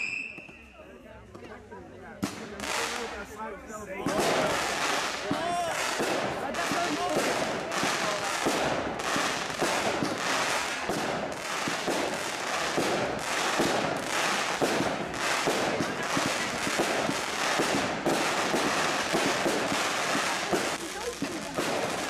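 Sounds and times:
fireworks crackling and banging: 0:00.0 - 0:22.0.

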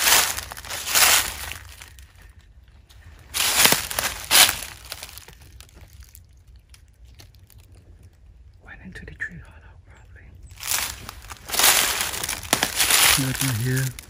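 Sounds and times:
footsteps on dry leaves: 0:00.0 - 0:06.2, 0:10.5 - 0:14.0
faint rustles and ticks: 0:05.0 - 0:14.0.

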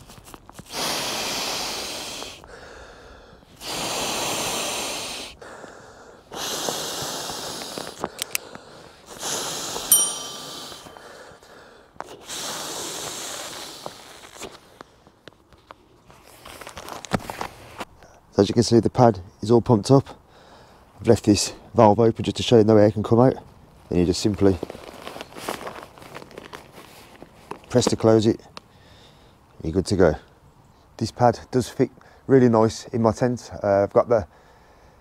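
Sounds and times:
short sharp ring: 0:09.9 - 0:11.1.

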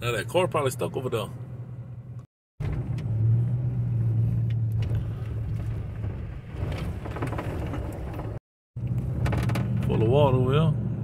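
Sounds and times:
car engine and tyres drone: 0:02.6 - 0:07.4.

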